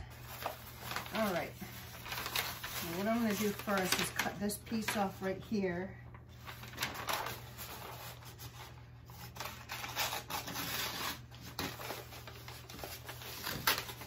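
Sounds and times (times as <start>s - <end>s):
stiff paper rustling: 0.0s - 14.0s
scissors cutting paper: 6.7s - 14.0s.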